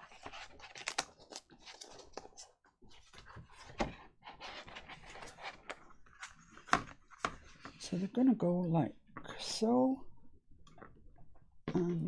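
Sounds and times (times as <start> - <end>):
paper rustling on tabletop: 0.0 - 8.0.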